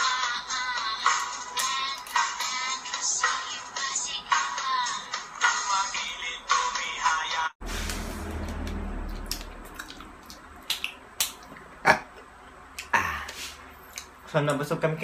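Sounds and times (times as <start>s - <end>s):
hand clap: 1.0s - 2.8s
low hum: 7.6s - 11.2s.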